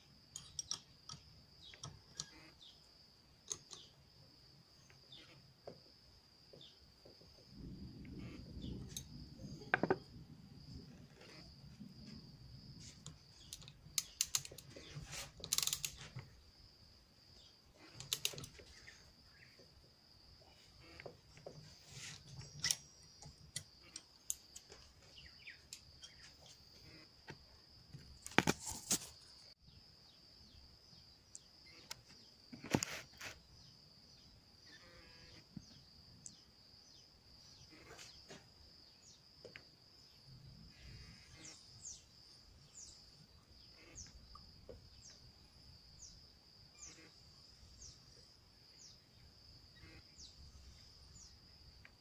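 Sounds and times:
insect chirring: 0.0 - 52.0
wrench clicking on metal: 0.4 - 1.2, 15.4 - 16.0.

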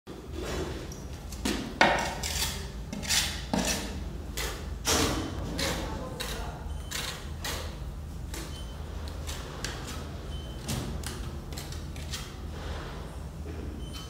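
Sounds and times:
trowel scraping wet mortar: 2.0 - 4.7, 5.4 - 8.5, 11.2 - 12.4.

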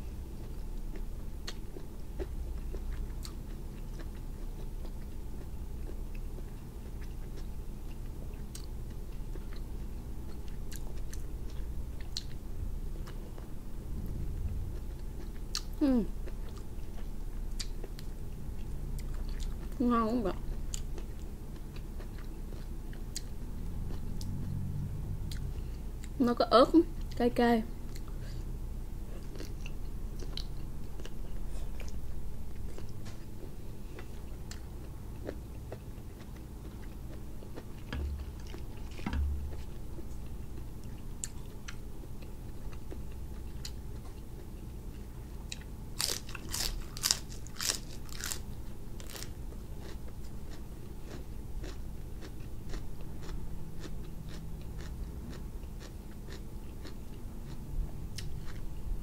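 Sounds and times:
chewing with wet mouth clicks: 0.4 - 12.4, 14.8 - 19.8, 20.5 - 24.4, 27.9 - 28.3, 29.1 - 48.4, 49.1 - 58.7
crisp crunches of lettuce: 46.0 - 50.0.

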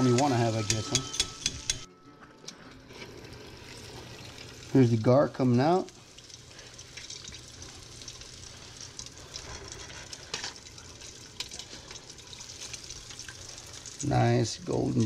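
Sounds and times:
hot oil sizzling: 0.0 - 15.0
oil crackles popping: 0.0 - 15.0.

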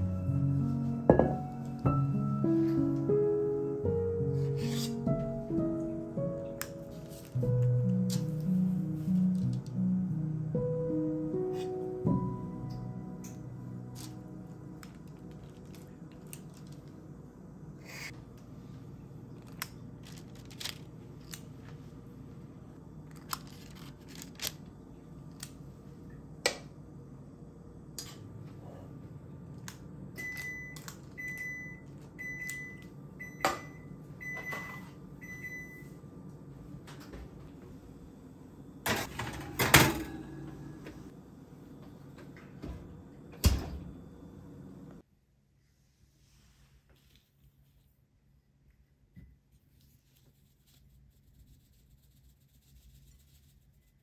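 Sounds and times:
oven beeping: 30.1 - 36.1, 38.8 - 41.1.

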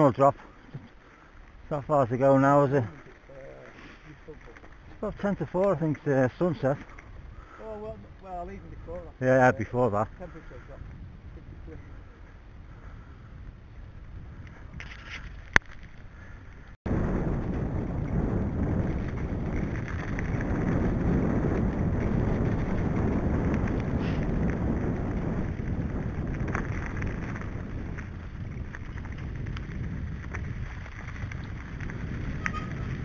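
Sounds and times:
tyres rumbling over rough trail: 0.0 - 33.0
wind buffeting microphone: 0.0 - 33.0
bike rattles and knocks: 18.0 - 33.0.

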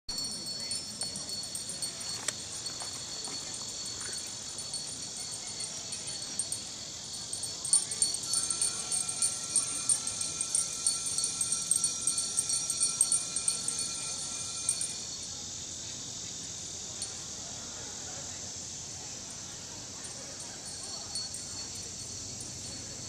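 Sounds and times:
chime-like ringing: 0.1 - 15.2, 20.1 - 23.0
crickets and insects chirping: 0.1 - 23.0.

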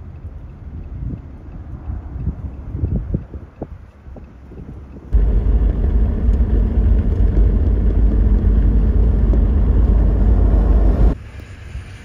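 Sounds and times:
tyre and road noise: 0.7 - 12.0
car engine drone: 5.1 - 12.0.

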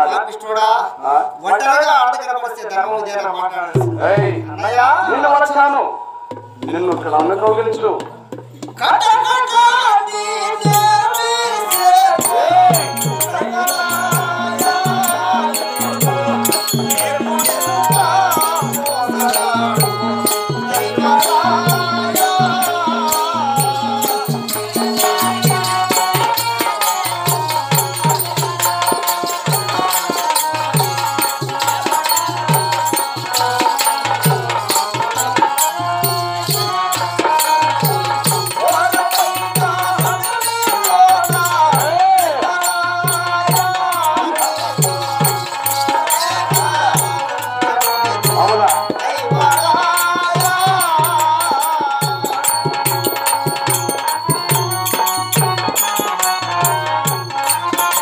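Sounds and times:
hand drum beat: 11.7 - 58.0.

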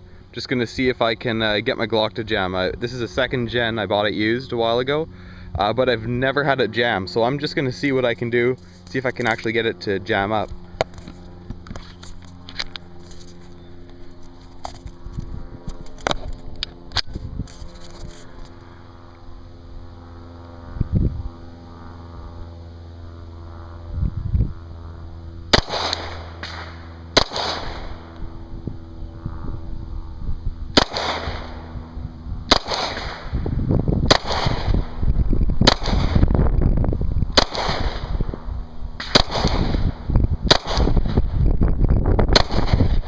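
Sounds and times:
pistol shots: 25.5 - 28.0, 30.8 - 31.6, 32.5 - 33.3, 34.1 - 34.8, 35.6 - 36.2, 37.4 - 38.1, 39.0 - 39.9, 40.5 - 41.1, 42.3 - 43.0.

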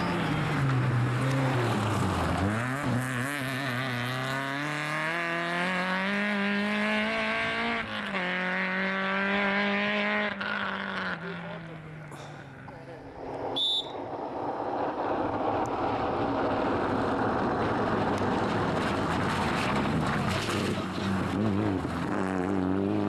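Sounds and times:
rally car engine accelerating: 0.0 - 13.6, 14.2 - 23.0.

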